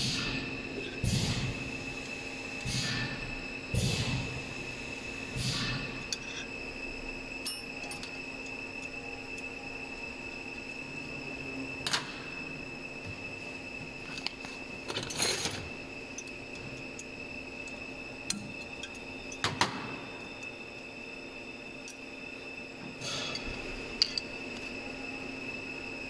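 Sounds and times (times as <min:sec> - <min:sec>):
machine hum with high whine: 0:00.0 - 0:26.0.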